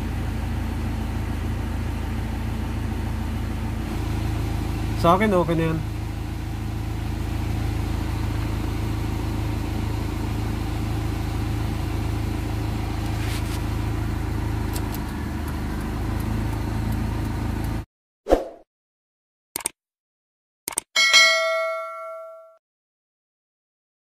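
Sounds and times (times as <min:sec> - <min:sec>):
car engine idling: 0:00.0 - 0:17.8
short ding: 0:21.0 - 0:22.6.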